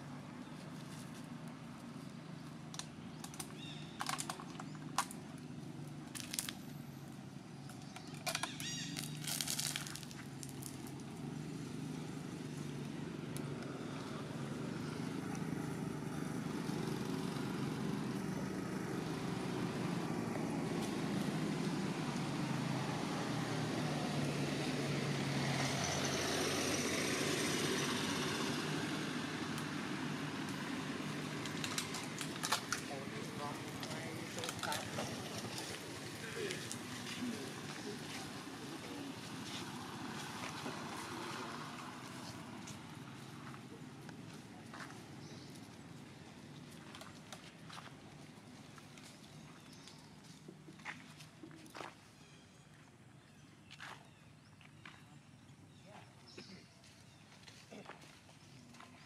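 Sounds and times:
sharp clicks and crackles: 2.7s - 5.2s, 31.4s - 32.9s, 33.7s - 35.8s.

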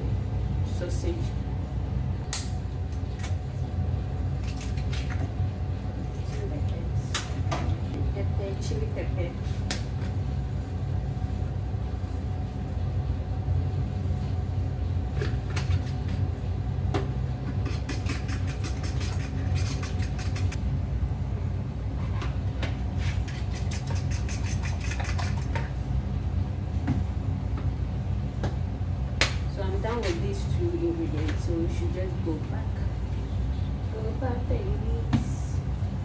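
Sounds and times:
fork beating eggs in bowl: 15.2s - 16.2s, 17.5s - 20.6s, 23.0s - 25.7s.

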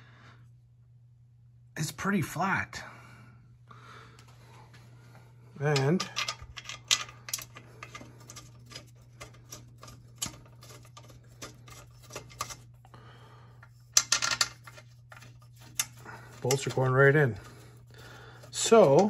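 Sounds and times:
metal scrape: 7.3s - 12.9s, 13.6s - 19.0s.

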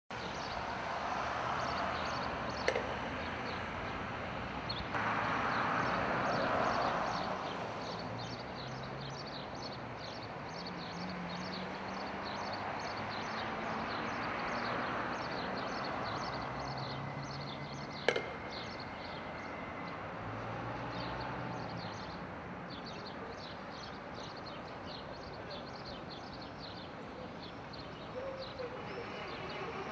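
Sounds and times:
low traffic hum: 0.1s - 29.9s
sharp knock: 18.1s - 18.8s.

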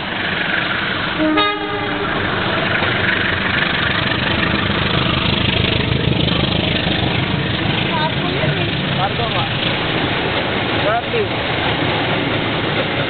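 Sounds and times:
train running past: 0.0s - 13.0s
train horn blast: 1.2s - 2.6s.

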